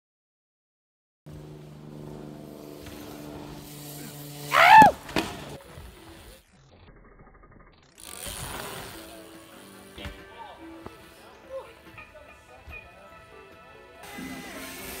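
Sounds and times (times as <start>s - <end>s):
steady low hum: 1.3s - 4.4s
person whooping: 4.5s - 5.0s.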